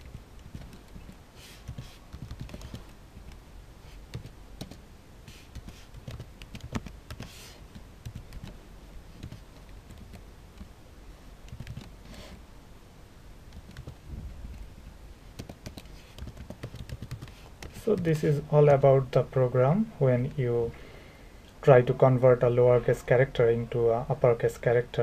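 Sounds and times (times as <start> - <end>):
keyboard typing clicks: 0.0 - 3.4, 4.1 - 4.8, 5.5 - 8.6, 11.5 - 12.0, 13.5 - 14.6, 15.4 - 18.1.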